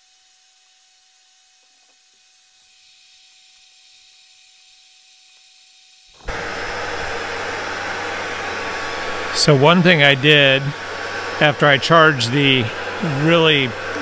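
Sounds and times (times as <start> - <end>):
centrifuge whirring: 6.2 - 14.0.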